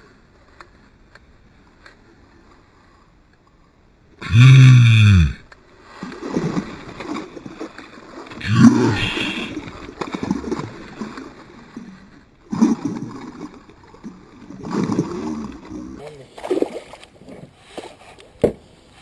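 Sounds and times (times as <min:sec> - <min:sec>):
person exclaiming: 0:04.2 - 0:05.4, 0:08.4 - 0:09.6.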